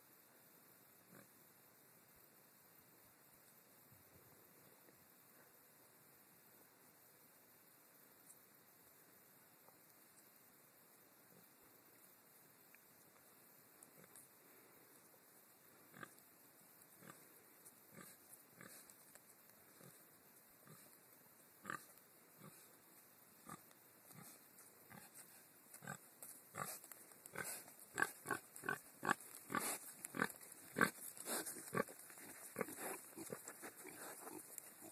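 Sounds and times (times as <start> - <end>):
pigs grunting: 25.8 - 34.9.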